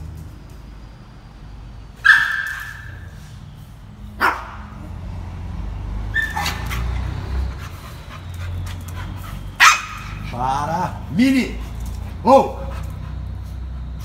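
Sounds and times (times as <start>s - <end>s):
dog barking: 2.0s - 3.2s, 4.2s - 4.8s, 6.1s - 7.1s, 8.1s - 10.4s.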